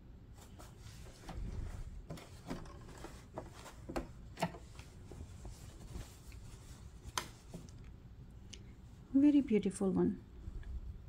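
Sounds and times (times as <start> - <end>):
fabric rustling: 0.3 - 7.8.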